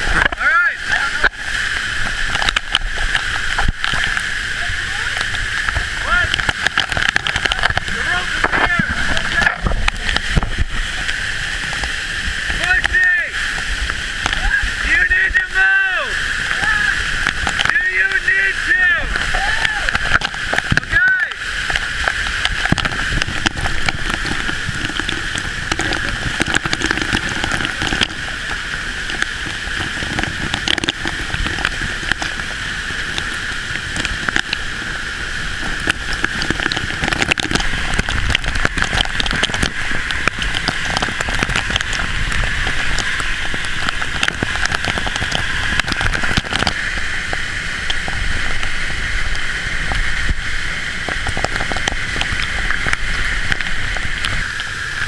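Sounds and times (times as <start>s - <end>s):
crackling spray spatter: 0.0s - 55.0s
waterfall rushing: 0.0s - 55.0s.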